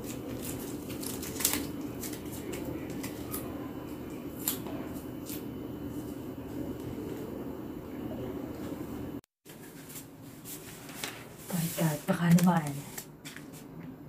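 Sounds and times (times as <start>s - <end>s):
photocards and plastic rustling: 0.0s - 3.5s, 9.5s - 13.7s
low room hum: 0.0s - 14.0s.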